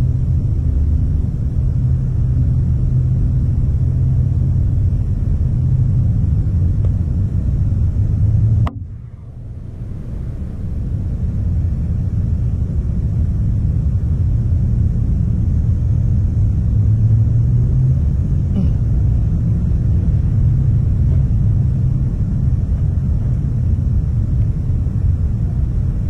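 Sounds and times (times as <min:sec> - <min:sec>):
wind buffeting microphone: 0:00.0 - 0:17.3.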